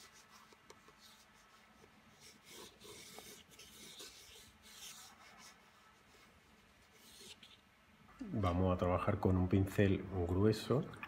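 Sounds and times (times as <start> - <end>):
pencil scratching on paper: 0.0 - 7.6.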